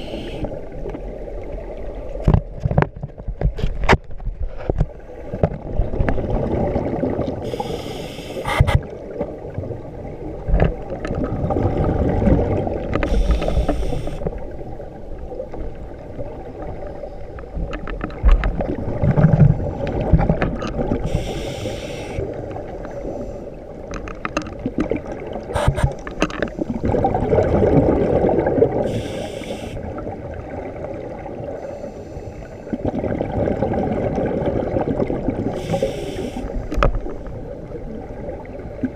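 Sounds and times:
exhaled bubbles hissing: 0:00.0 - 0:00.7, 0:06.2 - 0:08.9, 0:11.2 - 0:14.4, 0:18.8 - 0:23.5, 0:25.4 - 0:30.1, 0:31.4 - 0:36.8
underwater muffled rumble: 0:00.0 - 0:38.9.

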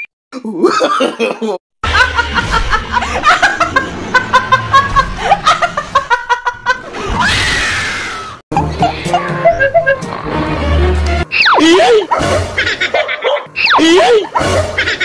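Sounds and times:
snickering and giggling laughter: 0:00.6 - 0:07.1, 0:08.6 - 0:10.2, 0:11.6 - 0:15.0.

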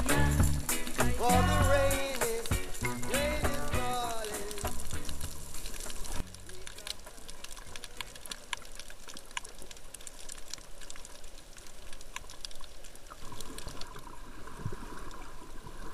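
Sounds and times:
high hiss: 0:00.0 - 0:08.3
small crackling clicks: 0:00.0 - 0:14.2
water sloshing underwater: 0:04.1 - 0:15.9.

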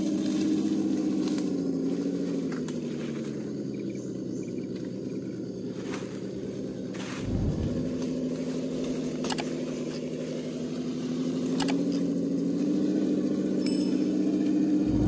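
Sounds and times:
electric motor whining: 0:07.2 - 0:08.2, 0:10.6 - 0:15.0.

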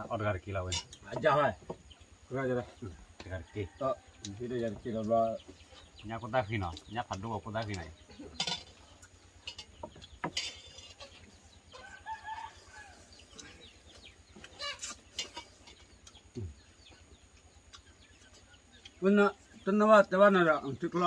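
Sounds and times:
spoons clinking on plates: 0:08.4 - 0:08.7, 0:09.4 - 0:11.1, 0:15.1 - 0:15.8
rooster crowing: 0:11.7 - 0:13.3.

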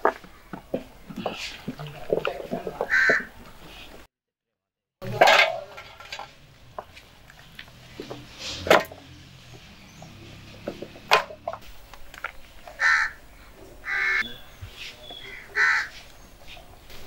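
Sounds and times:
crow cawing: 0:02.9 - 0:03.3, 0:12.7 - 0:13.2, 0:13.8 - 0:14.3, 0:15.2 - 0:16.0
meat clattering into metal trays: 0:05.0 - 0:07.4.

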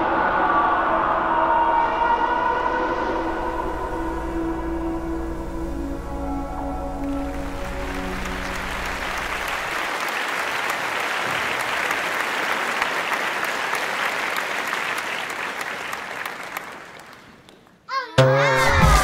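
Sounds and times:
music: 0:00.0 - 0:09.7, 0:18.2 - 0:19.0
crowd applause: 0:07.0 - 0:17.6.

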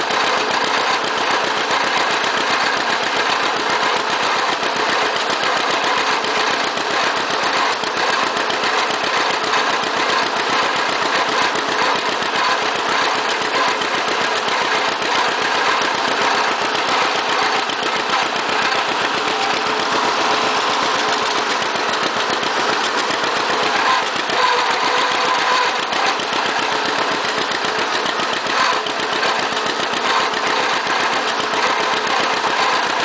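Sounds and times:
tractor engine running: 0:00.0 - 0:33.0.

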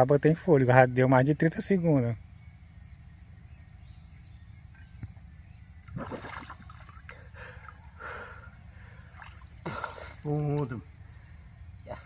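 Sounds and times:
high chirring of insects: 0:00.0 - 0:12.0
water splashing: 0:05.9 - 0:07.8, 0:09.0 - 0:10.8.

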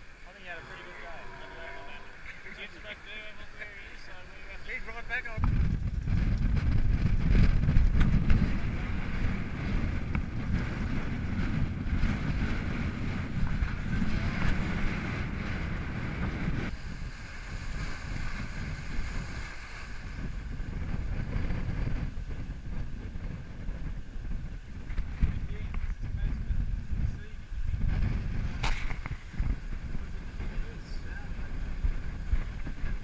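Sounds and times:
water rushing along hull: 0:00.0 - 0:05.4, 0:16.7 - 0:22.4
wind buffeting microphone: 0:00.0 - 0:33.0.

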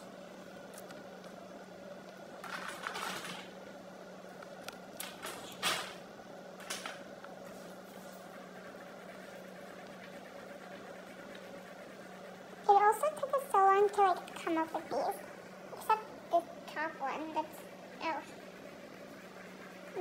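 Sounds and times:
faint steady hum: 0:00.0 - 0:20.0
pencil scratching on paper: 0:07.5 - 0:15.2, 0:17.2 - 0:20.0.

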